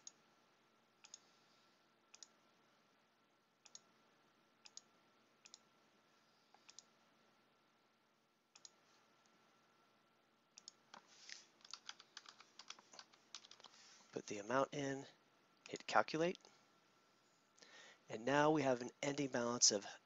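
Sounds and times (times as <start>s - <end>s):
faint computer mouse clicks: 1.0s - 1.2s, 2.1s - 2.3s, 4.6s - 5.6s, 6.5s - 6.9s, 8.6s - 8.8s
fast keyboard typing: 11.6s - 13.7s.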